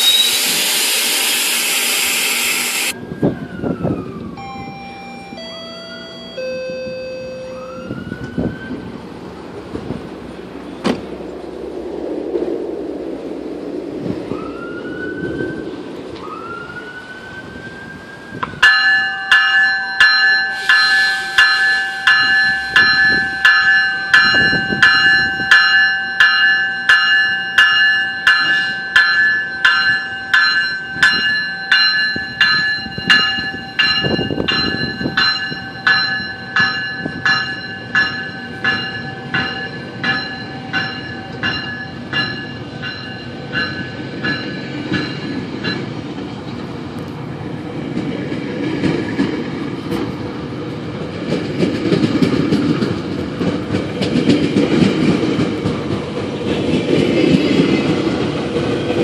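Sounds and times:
rising whines: 0.0 - 8.9, 10.1 - 18.6
train bell ringing: 4.3 - 8.5, 18.5 - 46.3.

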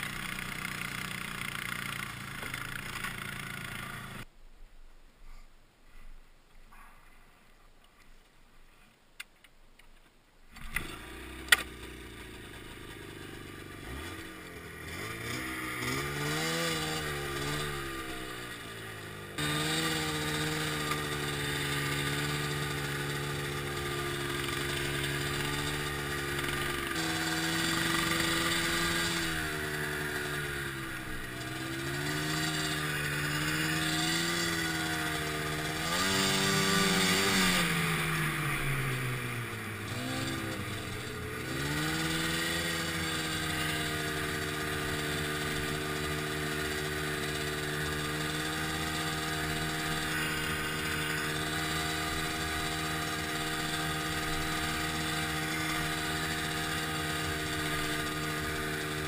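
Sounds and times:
snowmobile engine revving: 0.0 - 4.3, 10.6 - 59.0.

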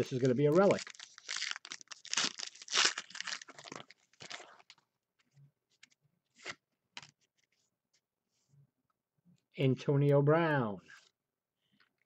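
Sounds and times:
wrapper crinkling and tearing: 0.0 - 4.8.

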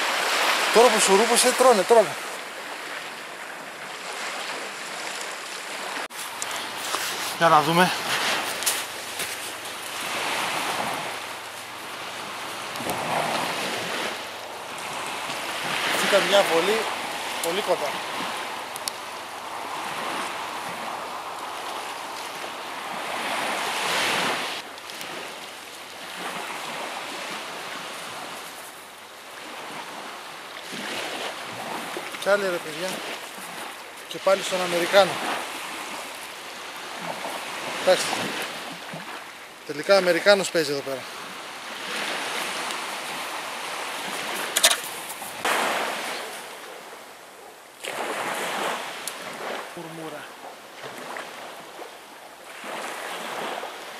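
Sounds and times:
sea waves washing onto beach: 0.0 - 53.9.

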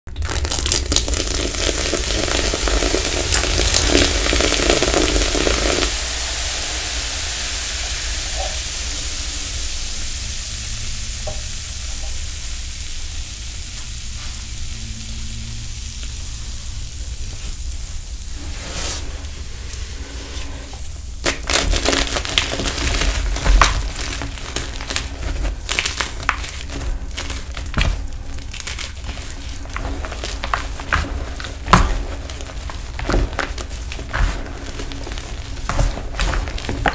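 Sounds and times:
liquid sizzling and bubbling: 0.1 - 36.9
chalk crunching and crackling: 17.0 - 36.9.

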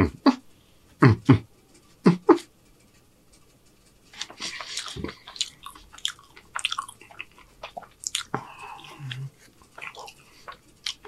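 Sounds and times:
close chewing and mouth clicks: 4.1 - 11.0.

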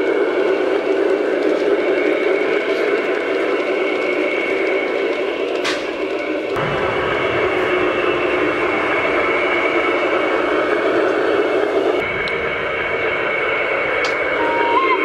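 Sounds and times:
model train rolling rumble: 0.0 - 15.0.

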